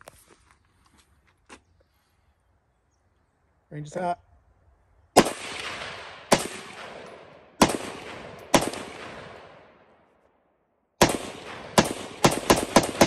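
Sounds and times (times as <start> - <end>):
rifle shots echoing: 5.1 - 10.1, 11.0 - 13.0.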